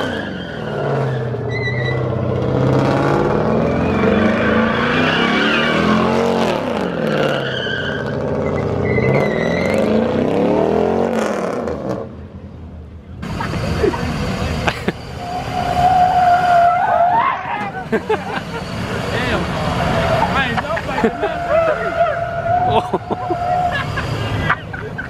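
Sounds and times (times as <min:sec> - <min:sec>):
tires squealing: 0:00.0 - 0:11.6, 0:13.2 - 0:25.0
truck engine revving: 0:00.0 - 0:12.3, 0:13.2 - 0:25.0.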